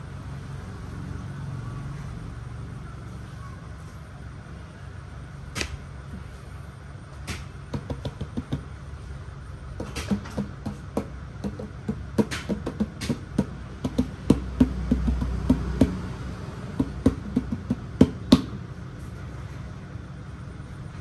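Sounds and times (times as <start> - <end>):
sharp knocks: 7.3 - 8.7, 9.8 - 16.1, 16.8 - 18.6
plastic lid and bottles tapping: 9.8 - 16.0.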